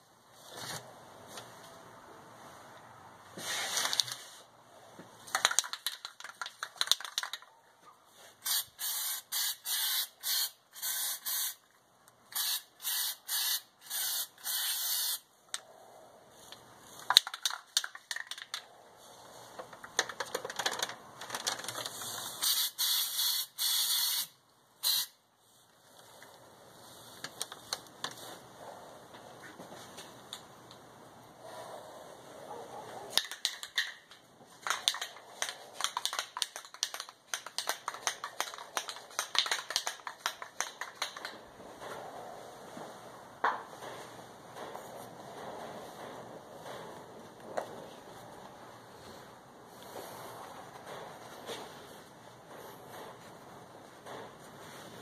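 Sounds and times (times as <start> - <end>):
mixing ball rattling in can: 5.3 - 7.5, 17.0 - 18.7, 33.2 - 41.4
aerosol can spraying: 8.4 - 11.6, 12.4 - 15.2, 22.4 - 25.2.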